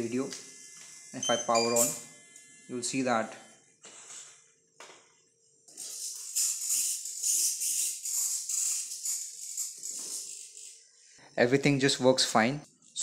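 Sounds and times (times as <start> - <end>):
camera servos buzzing: 0.0 - 2.8, 5.5 - 10.9.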